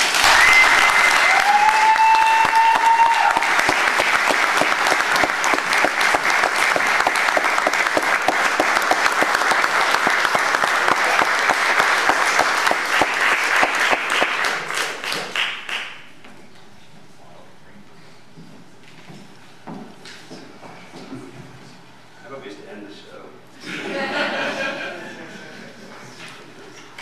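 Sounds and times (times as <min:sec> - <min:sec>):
audience applauding: 0:00.0 - 0:16.1.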